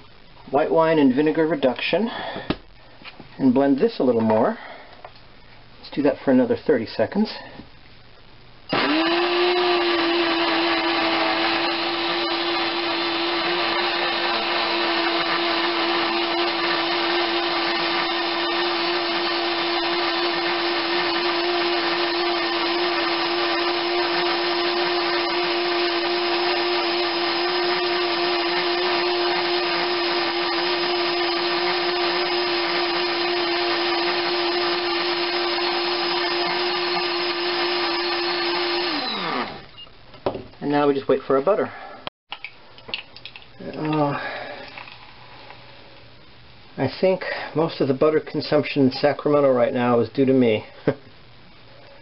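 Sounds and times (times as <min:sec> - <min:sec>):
electric blender motor: 0:08.7 - 0:39.7.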